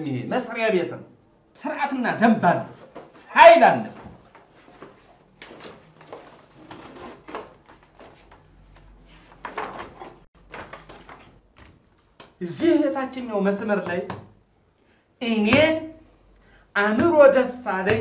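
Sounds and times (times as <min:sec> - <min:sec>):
papers rustling on a desk: 0:02.7 - 0:12.4.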